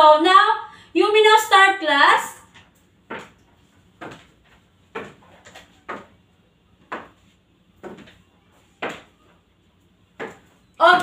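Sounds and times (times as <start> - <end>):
footsteps on hard floor: 2.5 - 6.2, 6.8 - 9.4, 10.1 - 11.0.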